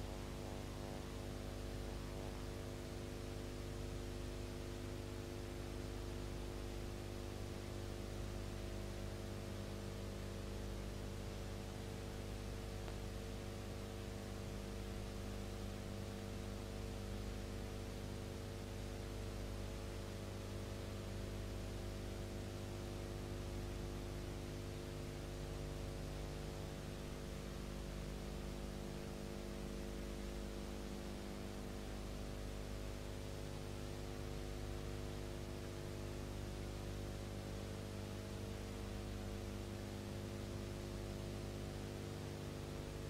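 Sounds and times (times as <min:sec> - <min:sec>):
electrical hum with steady tones: 0:00.0 - 0:43.0.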